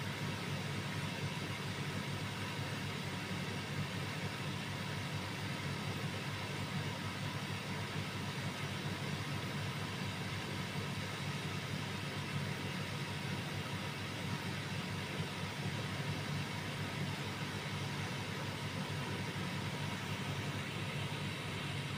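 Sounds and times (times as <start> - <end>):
steady low hum: 13.3 - 21.9.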